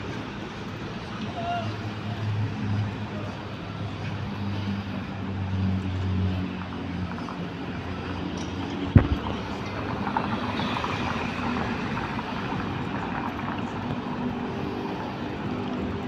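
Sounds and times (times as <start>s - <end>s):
wind noise: 8.8s - 15.6s
sharp thump: 8.9s - 9.3s.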